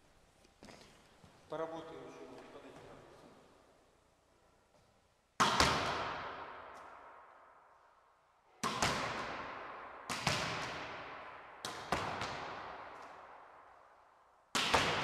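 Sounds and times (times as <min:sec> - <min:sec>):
hand slapping volleyball: 0:05.4 - 0:07.4, 0:08.6 - 0:13.5, 0:14.5 - 0:15.0.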